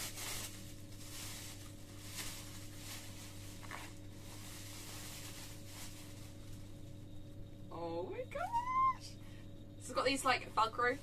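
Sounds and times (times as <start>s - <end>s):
plastic bag rustling: 0.0s - 7.0s.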